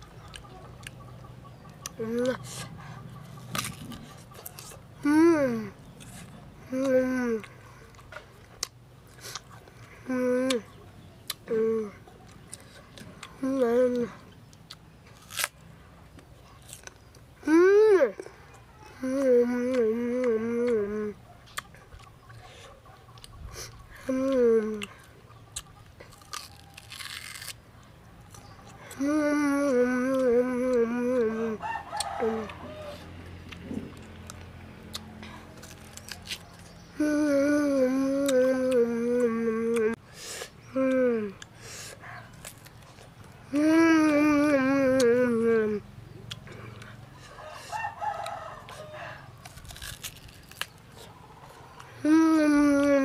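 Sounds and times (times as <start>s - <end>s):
crunching and chewing mango: 0.0s - 17.5s, 18.1s - 29.0s, 29.7s - 37.0s, 38.0s - 52.0s
boy humming with closed lips: 1.9s - 2.8s, 5.0s - 5.8s, 6.6s - 7.5s, 10.0s - 10.7s, 11.4s - 12.0s, 13.4s - 14.3s, 17.4s - 21.2s, 23.9s - 25.0s, 28.9s - 31.6s, 36.9s - 40.0s, 40.6s - 41.4s, 43.5s - 45.9s, 52.0s - 53.0s.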